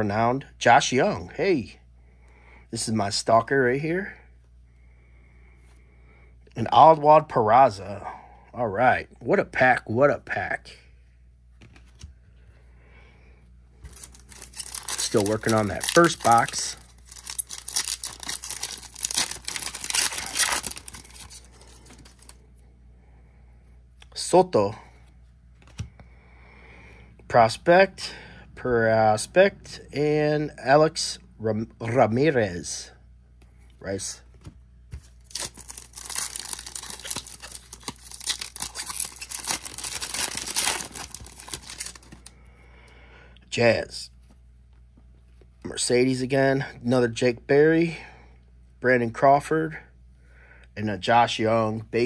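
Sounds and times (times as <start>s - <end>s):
card pack wrapper crinkling and tearing: 13.8s - 22.4s, 35.0s - 42.3s.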